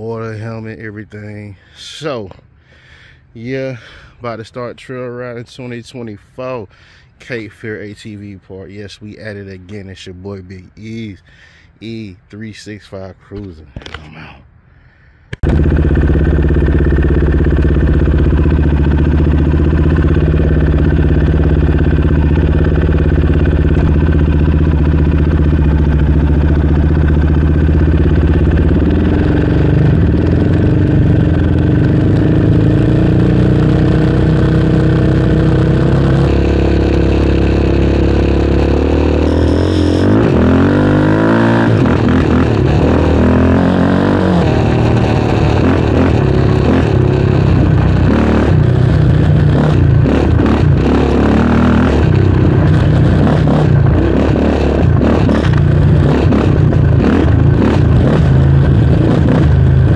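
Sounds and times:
atv engine revving: 15.3s - 59.9s.

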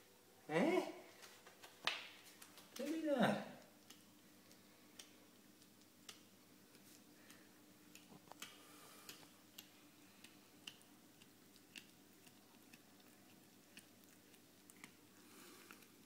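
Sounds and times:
cat chewing: 3.6s - 16.0s.

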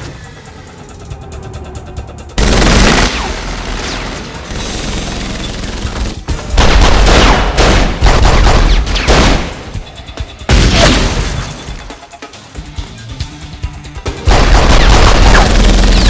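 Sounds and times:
pistol gunfire: 6.6s - 9.6s, 14.3s - 16.0s.

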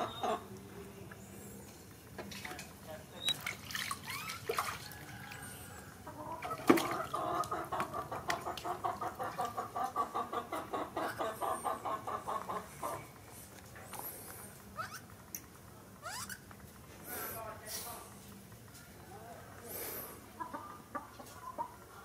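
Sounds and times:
rapid rhythmic clucking calls: 0.0s - 0.6s, 5.0s - 13.3s, 20.3s - 22.0s.

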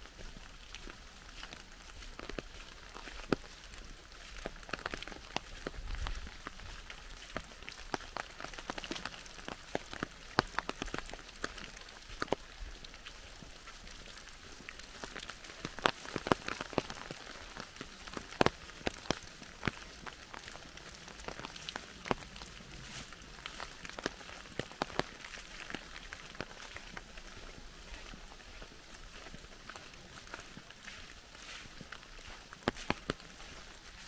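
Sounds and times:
rain hiss: 0.0s - 34.0s
raindrops landing close by: 0.0s - 34.0s.

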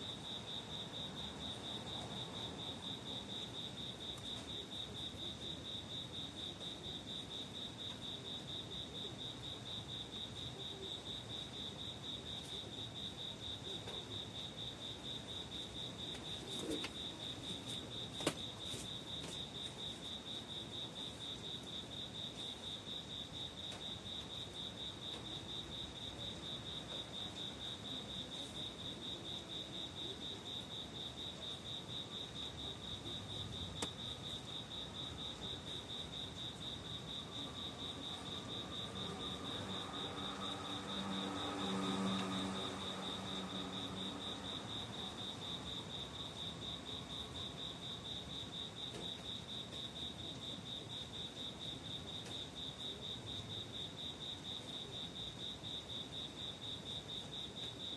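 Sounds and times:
crickets chirping: 0.0s - 57.9s.

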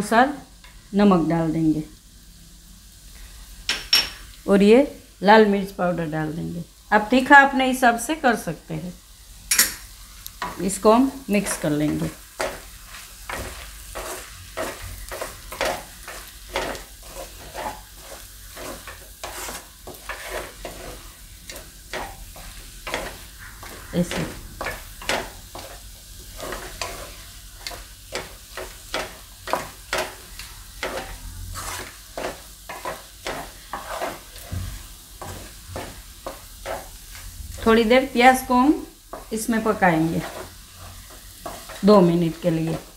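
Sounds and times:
low frying sizzle: 0.0s - 42.9s
metal spatula scraping pan: 10.4s - 37.8s, 39.1s - 42.0s.

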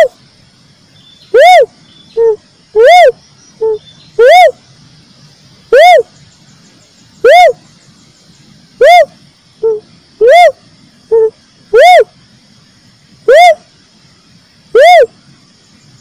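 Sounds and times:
dove whooping call: 1.2s - 4.6s, 5.7s - 6.3s, 7.1s - 7.8s, 8.7s - 12.2s, 13.2s - 13.7s, 14.7s - 15.2s.

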